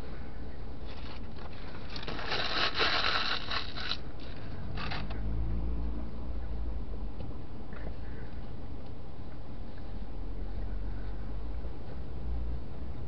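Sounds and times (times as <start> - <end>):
low steady hum: 0.0 - 13.0
paper food wrapping rustling: 0.8 - 5.1.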